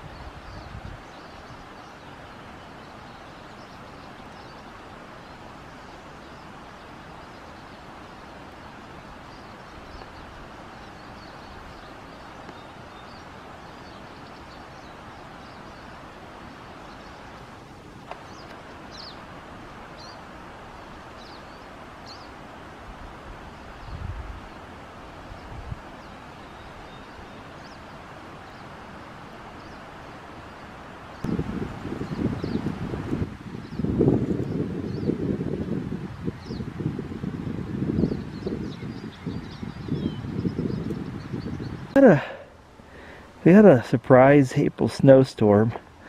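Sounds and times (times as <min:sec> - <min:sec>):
outdoor background hiss: 0:00.0 - 0:46.0
bird chirps: 0:09.3 - 0:16.0, 0:18.1 - 0:19.2, 0:25.3 - 0:28.7.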